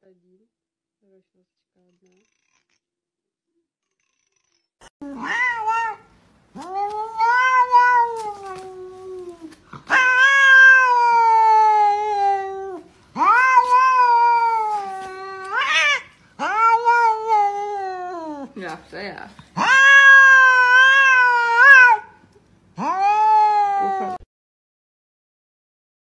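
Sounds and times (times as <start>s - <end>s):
cat yowling: 5.0s - 18.6s, 19.6s - 22.2s, 22.8s - 24.2s.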